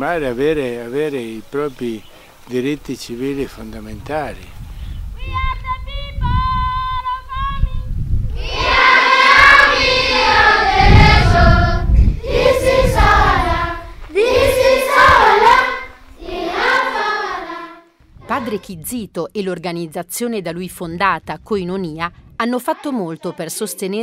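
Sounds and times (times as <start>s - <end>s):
children singing together: 8.4s - 18.6s.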